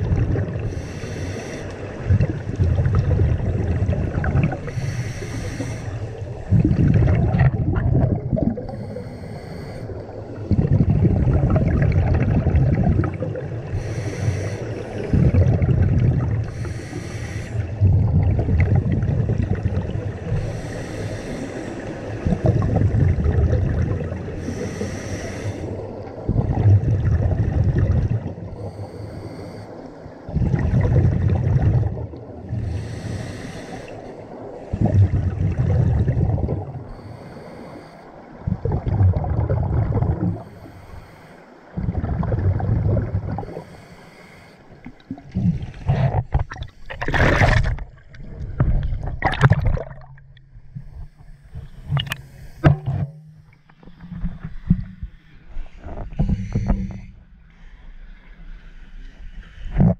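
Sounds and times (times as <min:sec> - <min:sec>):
exhaled bubbles rumbling: 0:00.0 - 0:00.8, 0:01.8 - 0:05.0, 0:05.9 - 0:09.1, 0:09.9 - 0:16.7, 0:17.6 - 0:20.6, 0:21.8 - 0:24.7, 0:25.7 - 0:28.7, 0:30.1 - 0:32.9, 0:34.6 - 0:37.0, 0:38.3 - 0:40.6, 0:41.7 - 0:43.7, 0:44.8 - 0:57.4
regulator inhale hiss: 0:00.6 - 0:02.0, 0:04.6 - 0:06.3, 0:08.6 - 0:10.4, 0:13.7 - 0:15.3, 0:16.4 - 0:17.8, 0:20.3 - 0:22.2, 0:24.3 - 0:26.0, 0:28.6 - 0:30.2, 0:32.5 - 0:34.8, 0:36.8 - 0:38.4, 0:40.3 - 0:41.7, 0:43.4 - 0:45.1, 0:50.8 - 0:52.7, 0:54.9 - 0:58.3.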